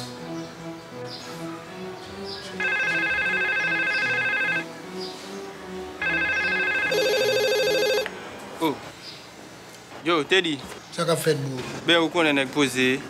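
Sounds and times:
soft background music: 0.0s - 13.0s
telephone ringing: 2.6s - 4.7s, 6.0s - 8.1s.

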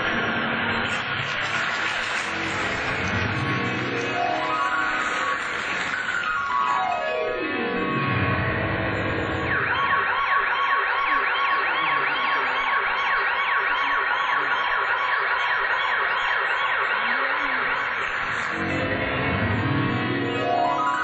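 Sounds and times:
steady held tone: 0.6s - 13.2s
siren wailing up and down: 2.2s - 21.0s.

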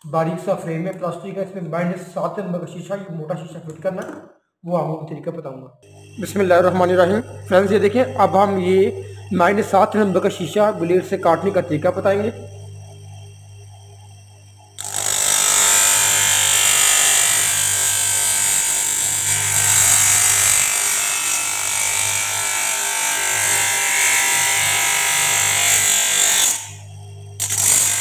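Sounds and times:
electric motor low hum: 5.8s - 28.0s
lens grinding on spinning wheel: 27.4s - 28.0s.

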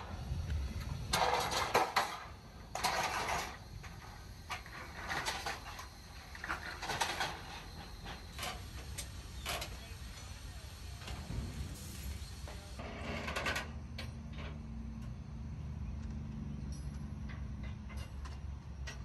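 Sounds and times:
metal ramps clanking and rattling: 0.8s - 10.0s, 11.0s - 14.7s, 16.9s - 19.0s.

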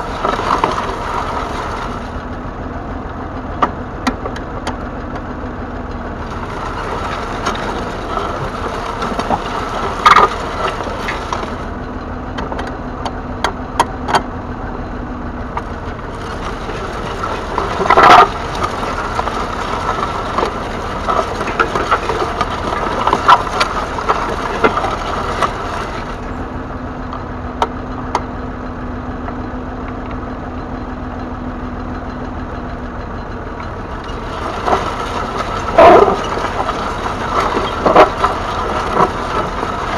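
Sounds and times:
diesel tractor engine running: 0.0s - 39.9s
sharp knocks and clatter: 6.2s - 11.7s, 15.6s - 26.4s, 33.2s - 39.9s.

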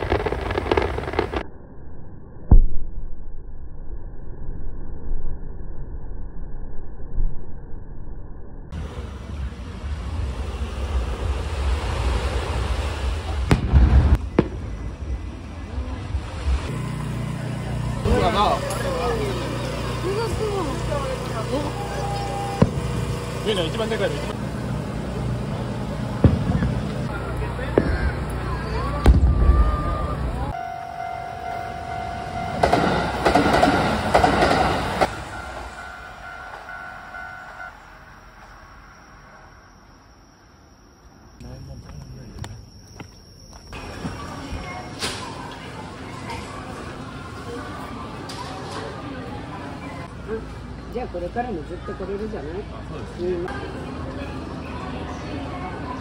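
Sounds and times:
firework bang: 0.0s - 1.4s, 9.3s - 15.3s, 22.0s - 23.4s, 26.2s - 28.2s, 29.0s - 30.4s, 32.3s - 36.6s
firework cracks: 0.0s - 1.4s, 10.2s - 15.3s, 32.6s - 36.0s
steady low rumble: 0.0s - 41.4s
level-crossing warning bell: 30.5s - 44.9s
train wheels clattering: 32.5s - 35.8s.

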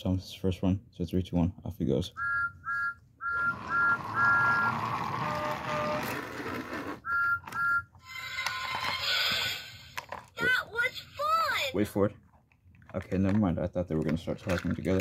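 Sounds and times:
toy train electronic whistle: 2.2s - 9.4s
toy motor whirring on track: 3.2s - 10.1s.

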